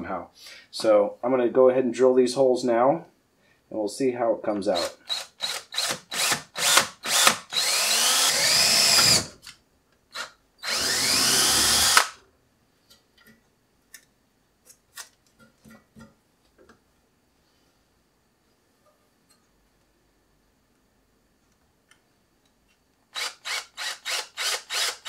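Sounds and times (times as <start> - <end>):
cordless drill motor: 4.8 - 9.3, 10.1 - 12.2, 23.2 - 25.0.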